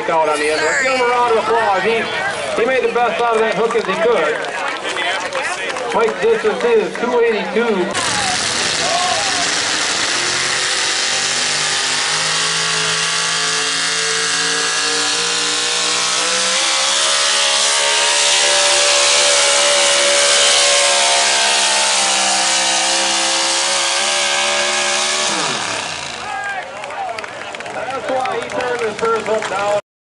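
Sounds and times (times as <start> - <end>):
truck engine at high revs: 5.9 - 29.8.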